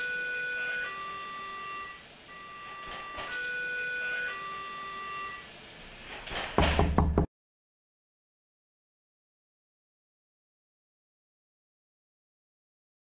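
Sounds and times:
two-tone siren: 0:00.0 - 0:05.5.

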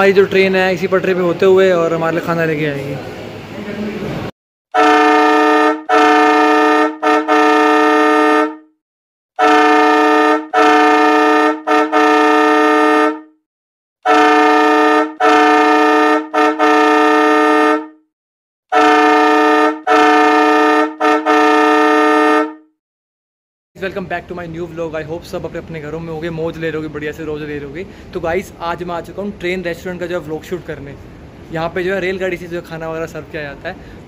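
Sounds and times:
two-pitch train horn toots: 0:04.7 - 0:08.8, 0:09.4 - 0:13.4, 0:14.0 - 0:18.1, 0:18.7 - 0:22.8.

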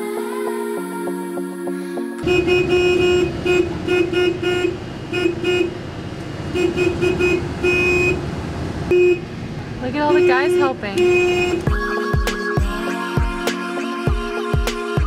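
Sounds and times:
car horn honking: 0:02.2 - 0:08.2, 0:08.9 - 0:11.7
road noise inside car: 0:02.2 - 0:11.7.

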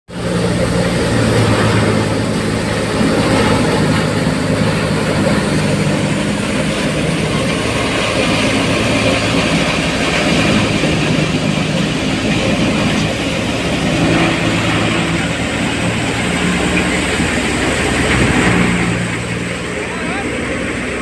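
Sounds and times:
thresher machine running: 0:00.1 - 0:21.0.

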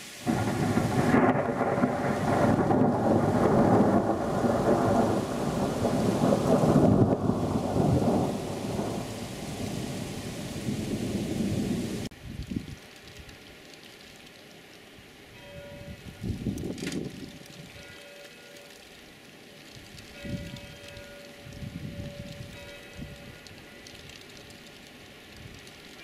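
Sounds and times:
heavy rain hiss: 0:00.0 - 0:26.0
thunder rumbling: 0:00.2 - 0:12.6.

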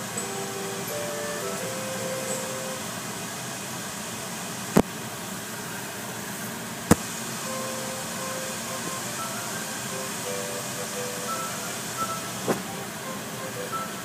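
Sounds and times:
faint music: 0:00.0 - 0:03.4, 0:06.9 - 0:14.0.

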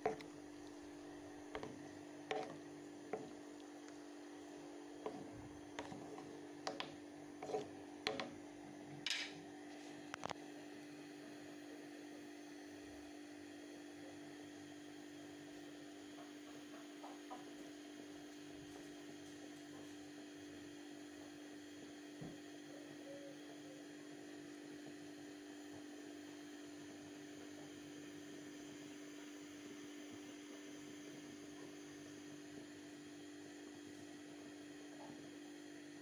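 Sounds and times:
steady low hum: 0:00.0 - 0:10.6.

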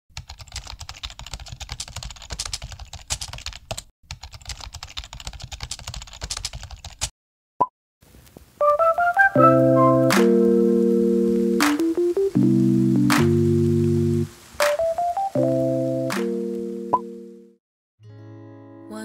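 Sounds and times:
rapid keyboard typing: 0:00.1 - 0:07.1.

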